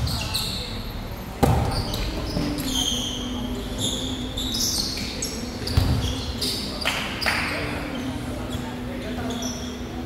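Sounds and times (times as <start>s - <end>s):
sneakers squeaking on court: 0.0s - 10.0s
volleyball strike: 1.4s - 1.8s.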